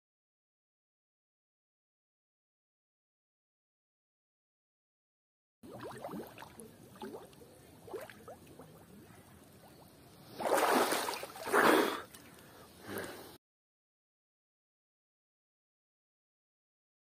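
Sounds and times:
underwater bubbling: 5.6 - 12.4
water splashes: 5.6 - 12.4.

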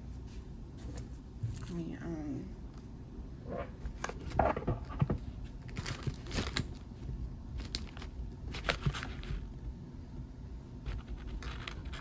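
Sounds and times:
packets crinkling and rustling: 4.0 - 9.5.

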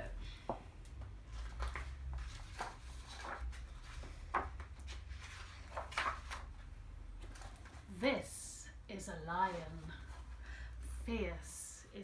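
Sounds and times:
book pages turning: 1.1 - 7.9.

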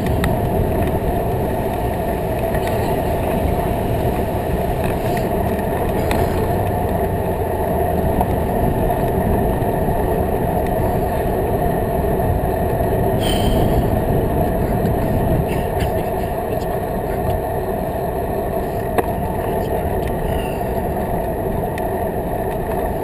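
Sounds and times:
bicycle tyre rumble: 0.0 - 23.0
wind rush: 0.0 - 23.0
high-pitched ring: 13.2 - 14.0.

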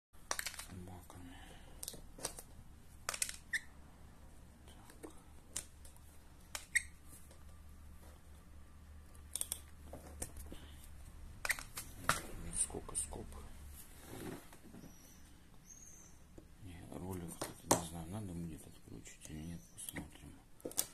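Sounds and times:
faint low hum: 0.4 - 20.9.

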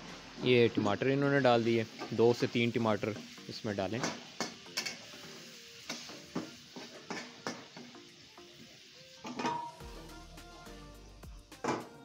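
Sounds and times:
metal spatula scraping a pan: 0.0 - 8.0
food sizzling in oil: 0.0 - 12.0.

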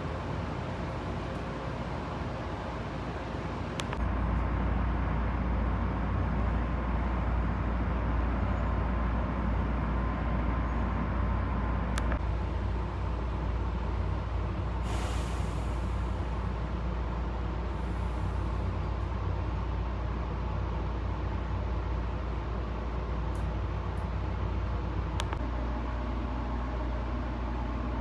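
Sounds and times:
electric train rumbling: 0.0 - 28.0
short air hiss: 14.8 - 16.2.

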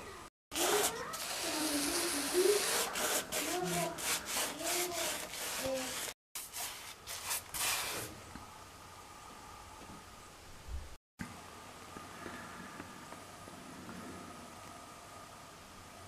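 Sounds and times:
putty knife scraping filler: 0.6 - 6.1.

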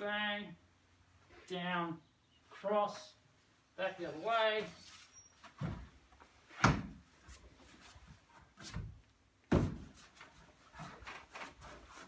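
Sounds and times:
body thuds on timber decking: 9.5 - 9.9.

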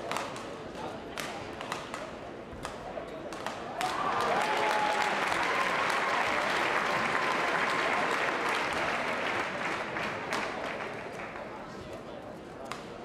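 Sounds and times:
crowd applauding: 3.8 - 11.5.

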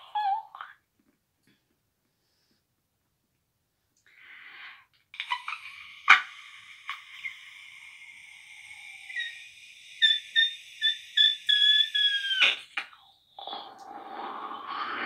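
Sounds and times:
shrill whistle blown: 8.5 - 12.6.

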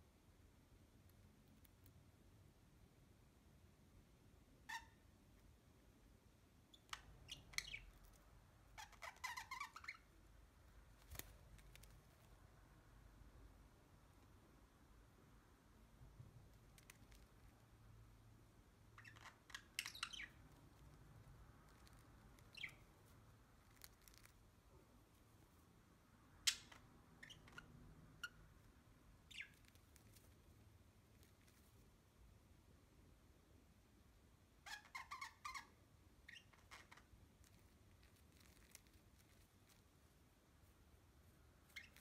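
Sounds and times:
budgerigars chirping: 19.0 - 20.4.

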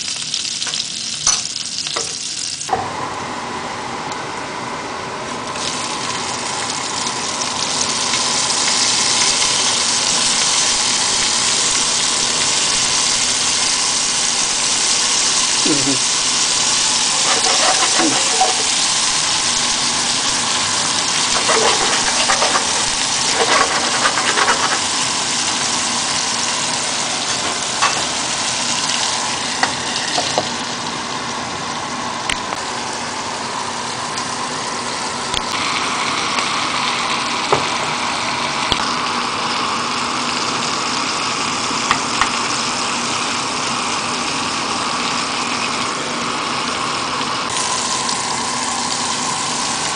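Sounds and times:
food sizzling in a frying pan: 0.0 - 3.0, 5.3 - 49.9
utensil clicking against pan: 21.3 - 24.9.

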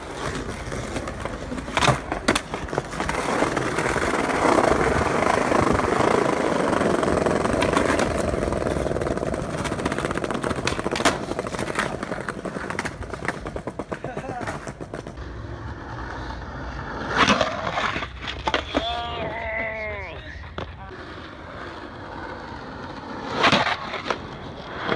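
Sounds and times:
skateboard clacks: 0.0 - 15.2
skateboard wheels rolling on pavement: 0.0 - 24.9.

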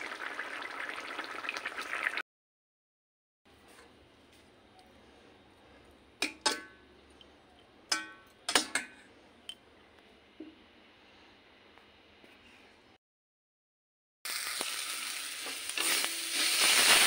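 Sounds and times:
spoon clinking against metal pot: 6.2 - 6.8, 7.9 - 9.0.

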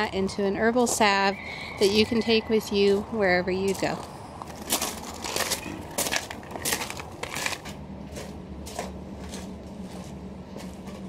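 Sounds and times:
low steady hum: 0.0 - 11.0
footsteps on gravel: 0.7 - 11.0.

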